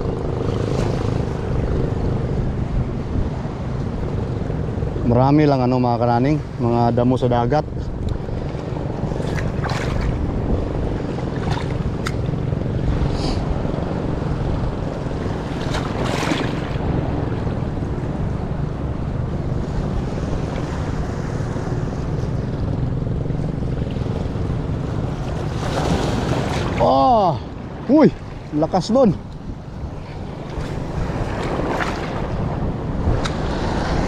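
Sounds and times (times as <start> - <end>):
boat engine running: 0.0 - 34.0
waves washing around hull: 0.0 - 34.0
wind buffeting microphone: 0.0 - 34.0
short splashes or knocks: 9.2 - 10.2, 15.6 - 16.8, 25.3 - 26.9.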